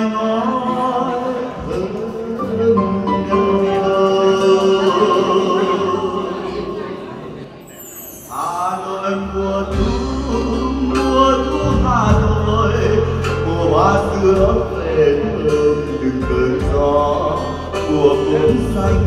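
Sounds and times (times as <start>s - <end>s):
man singing into microphone: 0.0s - 7.1s, 8.2s - 19.0s
acoustic guitar: 0.0s - 19.0s
sustained bass line: 9.3s - 19.0s.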